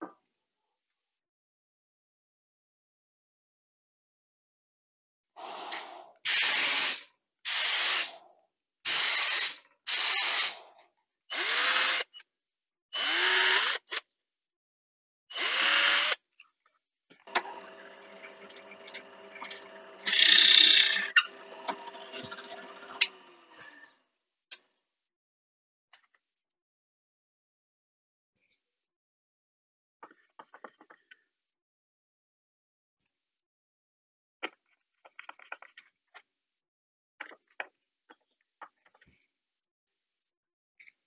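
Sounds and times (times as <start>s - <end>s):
cordless drill bursts: 6.3s - 8.1s, 8.9s - 10.6s, 11.3s - 12.0s, 13.0s - 13.9s, 15.3s - 16.2s
drill bit cutting wood: 6.4s - 8.1s, 8.9s - 10.6s, 11.3s - 12.1s, 13.0s - 14.0s, 15.3s - 16.2s, 17.3s - 23.9s
drill press motor humming: 17.3s - 23.9s.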